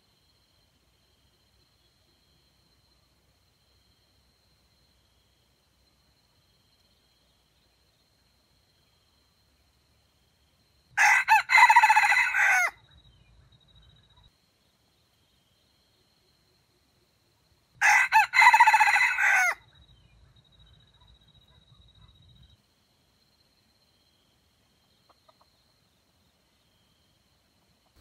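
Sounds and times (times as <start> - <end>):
rooster crowing: 11.0 - 12.8, 17.8 - 19.6.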